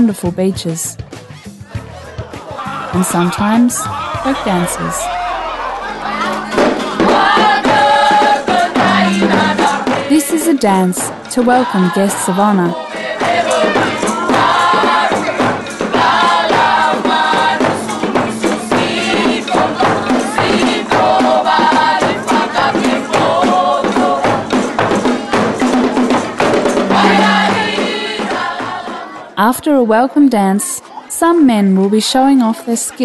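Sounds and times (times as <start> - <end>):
group singing in chorus: 4.0 - 29.4
sharp percussive beats: 4.3 - 29.2.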